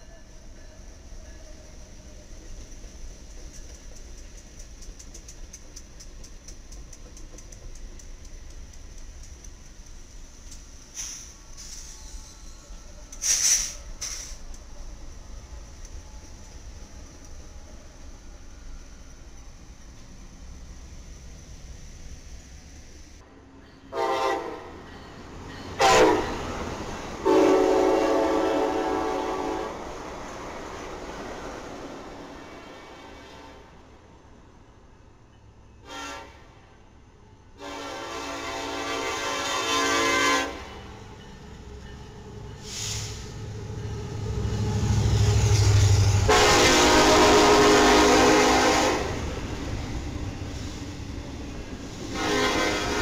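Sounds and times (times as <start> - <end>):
locomotive engine rumble: 0.0 - 32.6, 40.4 - 53.0
passing train coaches: 0.0 - 53.0
train horn blasts: 23.3 - 24.9, 25.8 - 26.6, 27.2 - 29.9, 35.8 - 36.8, 37.6 - 41.0, 45.3 - 49.3, 52.1 - 53.0.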